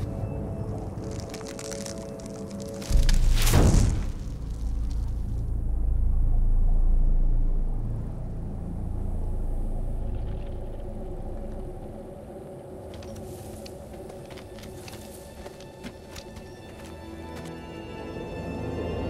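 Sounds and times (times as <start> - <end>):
deep low rumble: 0.0 - 12.9
faint steady hum: 4.7 - 14.5.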